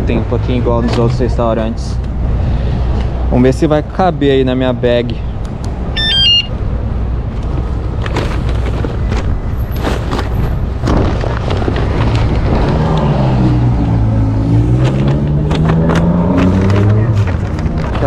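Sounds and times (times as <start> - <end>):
low street rumble: 0.0 - 18.0
paper bags rustling and knocking: 8.0 - 12.7
passing vehicle engine hum: 11.9 - 18.0.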